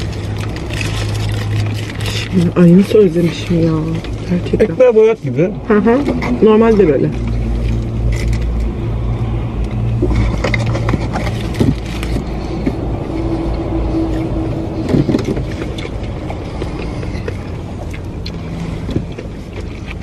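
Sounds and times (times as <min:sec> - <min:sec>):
paper wrappers crinkling: 0:00.0 - 0:04.7, 0:09.8 - 0:17.1
low rumble inside car: 0:00.0 - 0:20.0.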